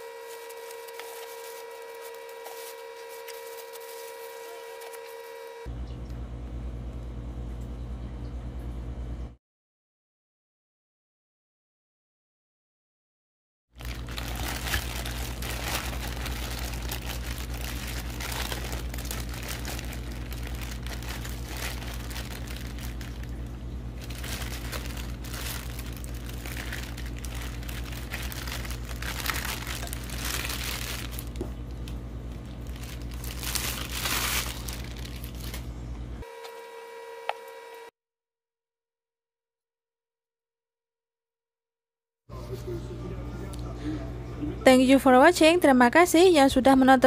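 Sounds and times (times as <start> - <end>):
plastic bag crinkling: 0.0 - 5.2, 13.8 - 35.7
low electrical hum: 0.0 - 9.4, 13.8 - 37.9, 42.3 - 47.0.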